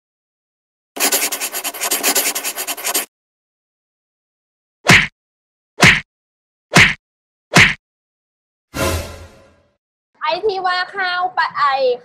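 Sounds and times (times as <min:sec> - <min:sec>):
brush scratching on paper: 0:01.0 - 0:03.1.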